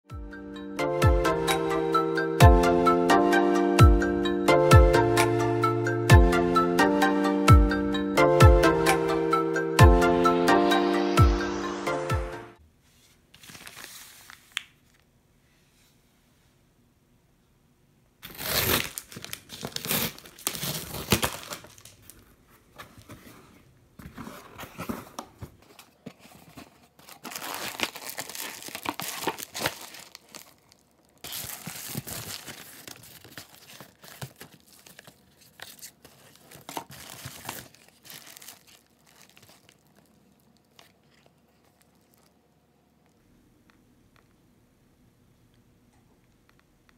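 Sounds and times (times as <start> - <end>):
plastic mailer crinkling and tearing: 13.4 - 15.0, 18.2 - 22.2, 24.1 - 42.4
packing tape ripping: 18.2 - 22.0, 27.0 - 40.0.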